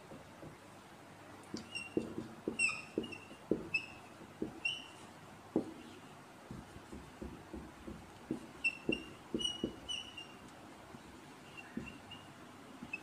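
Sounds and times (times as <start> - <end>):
marker squeaks: 1.5 - 6.0, 8.3 - 10.4, 11.4 - 13.0
marker writing on whiteboard: 1.5 - 13.0.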